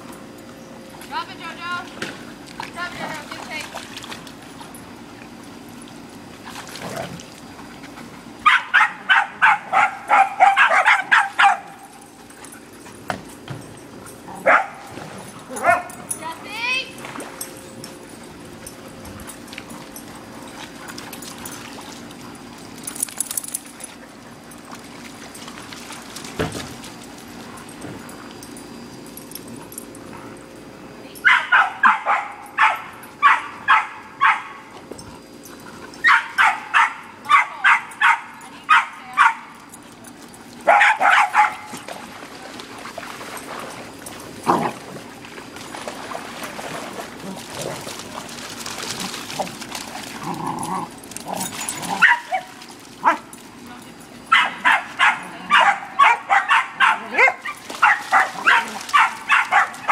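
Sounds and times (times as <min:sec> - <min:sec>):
dog barking: 0:08.4 - 0:11.8, 0:14.4 - 0:14.8, 0:31.2 - 0:34.6, 0:36.0 - 0:39.5, 0:40.7 - 0:41.7, 0:54.3 - 0:59.9.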